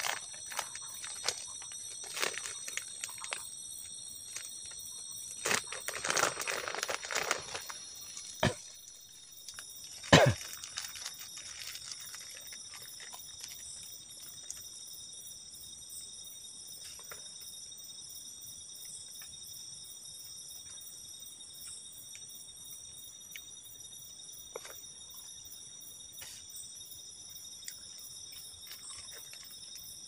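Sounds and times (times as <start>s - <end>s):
insects trilling: 0.0s - 30.0s.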